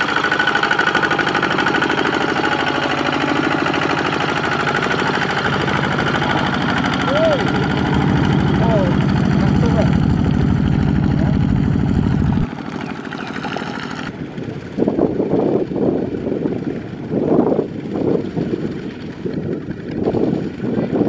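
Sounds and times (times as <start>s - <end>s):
tractor engine labouring: 0.0s - 14.5s
wheels churning mud: 0.0s - 15.5s.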